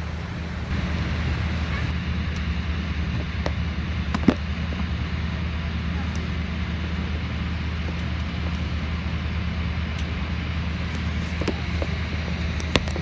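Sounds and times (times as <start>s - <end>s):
cabin air-conditioning: 0.0s - 13.0s
jet engines idling: 0.0s - 13.0s.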